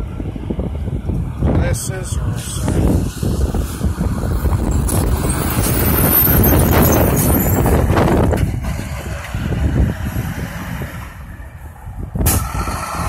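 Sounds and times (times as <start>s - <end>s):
garbage truck engine passing: 2.8s - 13.0s.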